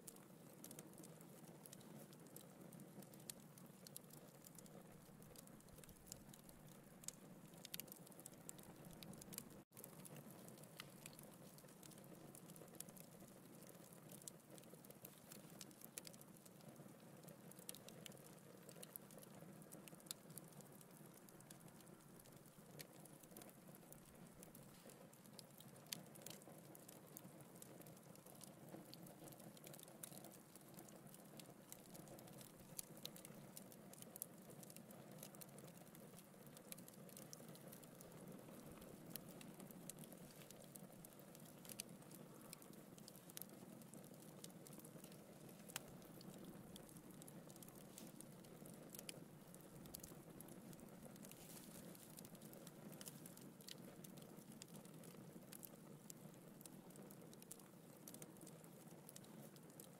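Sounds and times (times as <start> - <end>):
fire crackling: 0.0 - 59.9
logs popping: 36.7 - 54.8.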